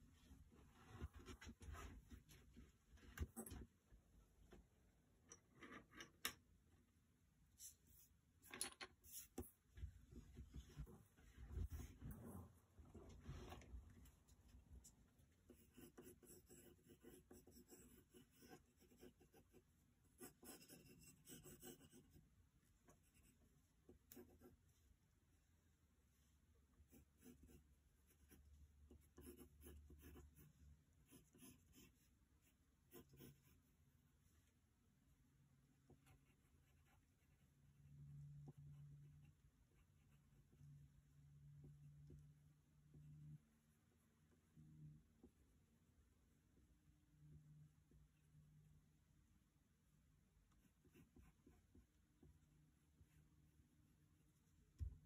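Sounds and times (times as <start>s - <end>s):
pencil scratching on paper: 9.0s - 9.6s, 15.3s - 22.3s, 22.9s - 24.7s, 26.8s - 33.8s, 35.9s - 37.6s, 50.5s - 52.4s.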